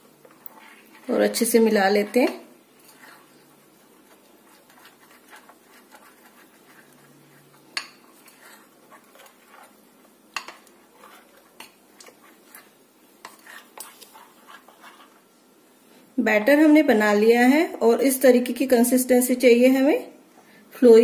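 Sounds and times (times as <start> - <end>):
spoon scraping in batter: 0.0 - 15.8.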